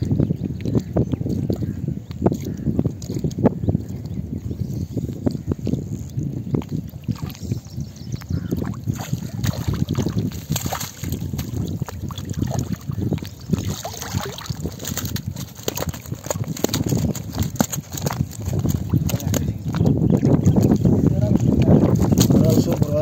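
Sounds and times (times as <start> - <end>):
water sloshing and splashing: 5.6 - 20.8.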